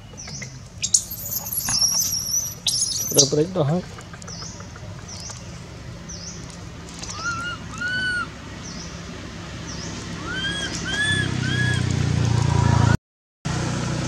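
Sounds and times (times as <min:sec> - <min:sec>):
steady low hum: 0:00.0 - 0:10.8
arching animal calls: 0:01.1 - 0:08.5, 0:10.0 - 0:12.9.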